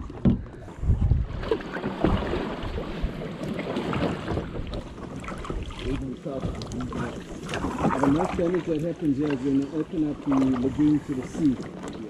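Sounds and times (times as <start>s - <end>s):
wind rumbling on microphone: 0.0s - 8.8s
paddle splashing through water: 0.0s - 12.0s
water pattering off paddle: 0.0s - 12.0s.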